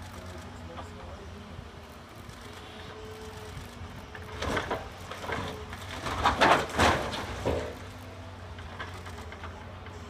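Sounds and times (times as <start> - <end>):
excavator engine hum: 0.0 - 10.0
material crashing and crunching: 4.4 - 7.9.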